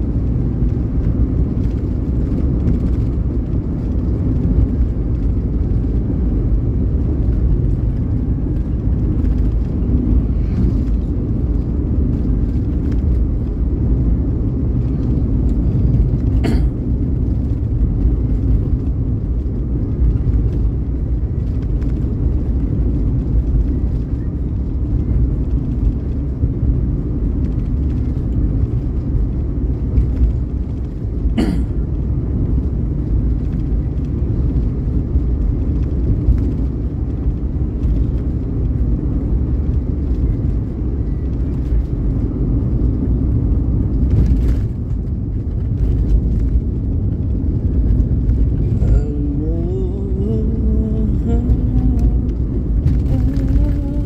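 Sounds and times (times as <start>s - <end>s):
vehicle engine and tyre rumble: 0.0s - 54.0s.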